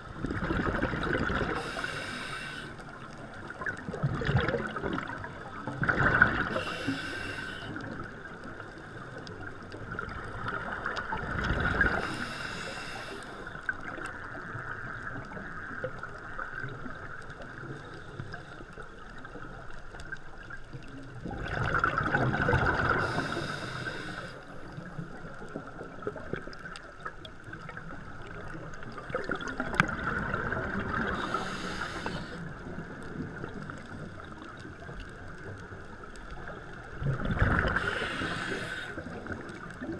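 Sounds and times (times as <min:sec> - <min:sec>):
steady underwater hiss: 0:00.0 - 0:39.9
bubbles rushing from regulator: 0:00.2 - 0:01.6, 0:03.6 - 0:06.5, 0:09.9 - 0:12.0, 0:21.1 - 0:23.1, 0:28.8 - 0:31.3, 0:36.8 - 0:38.2.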